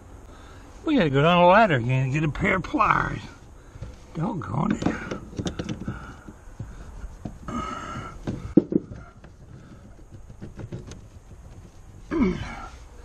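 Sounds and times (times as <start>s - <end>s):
low grunt-like sounds: 12.1s - 12.8s.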